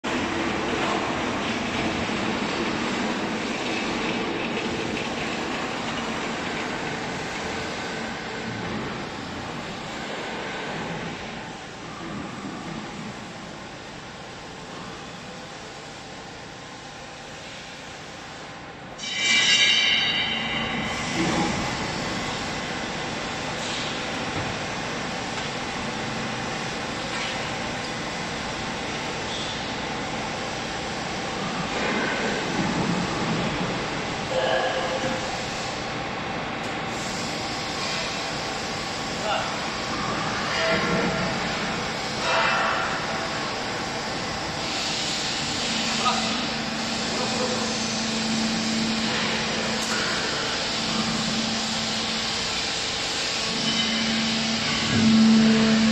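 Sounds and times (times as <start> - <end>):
factory machinery rumbling: 0.0 - 55.9
hydraulic pump and motor hum: 0.0 - 55.9.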